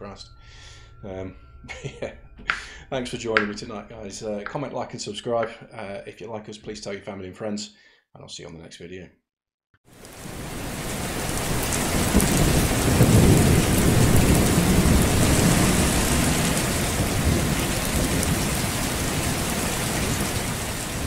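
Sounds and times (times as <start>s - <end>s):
rain: 9.9s - 21.0s
rolling thunder: 10.2s - 21.0s.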